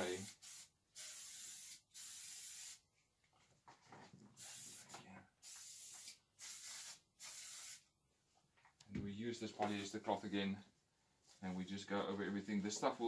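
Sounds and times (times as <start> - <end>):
aerosol can spraying: 0.0 - 2.8, 4.4 - 7.9.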